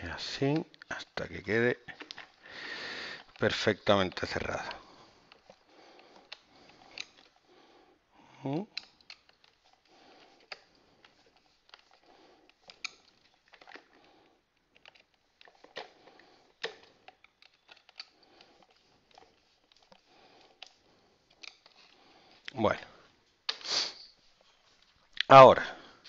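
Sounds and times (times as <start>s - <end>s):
screwdriver clicks and scrapes on plastic: 3.2s - 7.4s, 8.7s - 14.0s, 14.6s - 22.0s.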